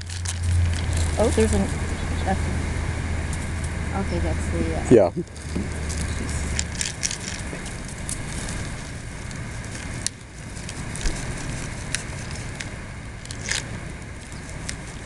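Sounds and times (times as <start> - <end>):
low background rumble: 0.0 - 15.0
light crackles and clicks: 5.3 - 15.0.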